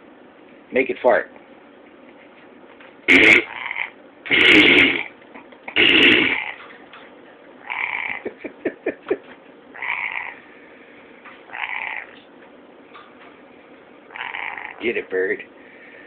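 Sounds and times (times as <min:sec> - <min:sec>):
fart noises from small speaker: 0:03.1 - 0:03.6, 0:04.3 - 0:05.1, 0:05.7 - 0:06.6.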